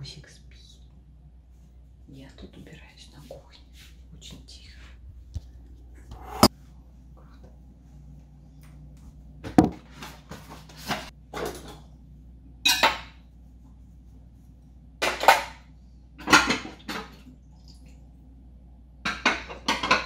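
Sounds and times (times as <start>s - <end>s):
dishes clinking and clattering: 11.0s - 11.9s, 12.6s - 13.2s, 15.0s - 17.3s, 19.0s - 20.0s.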